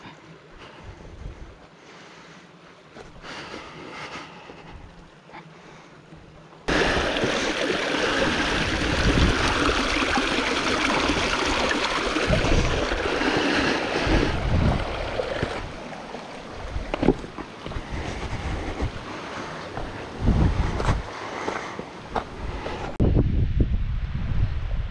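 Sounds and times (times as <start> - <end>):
stream splashing over boulders: 6.7 - 17.7.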